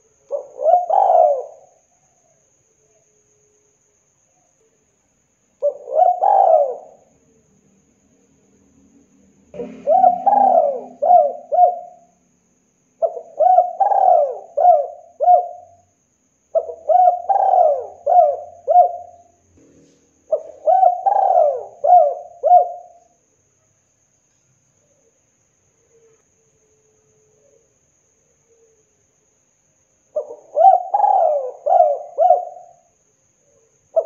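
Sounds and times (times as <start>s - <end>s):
dove cooing: 0.3s - 1.8s, 5.6s - 7.1s, 9.5s - 12.2s, 13.0s - 15.9s, 16.6s - 19.3s, 20.3s - 23.1s, 30.2s - 32.9s.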